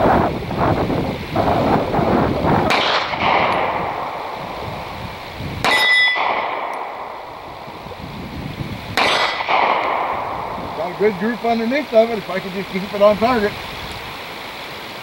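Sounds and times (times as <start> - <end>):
wind noise: 0.0 - 14.5
pistol shots: 2.7 - 4.3, 5.6 - 7.1, 9.0 - 10.5
steel plate target clanging: 5.6 - 7.1, 9.0 - 10.1.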